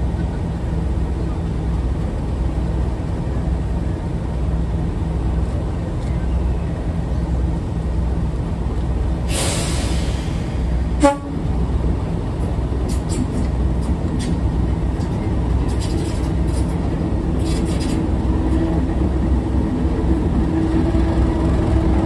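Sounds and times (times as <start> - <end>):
diesel locomotive engine throbbing: 0.0 - 22.0
air hissing: 9.2 - 10.8
locomotive horn blast: 11.0 - 11.5.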